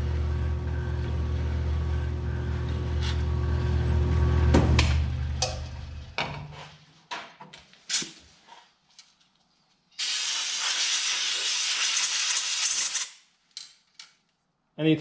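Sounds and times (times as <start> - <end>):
milling machine motor hum: 0.0 - 6.0.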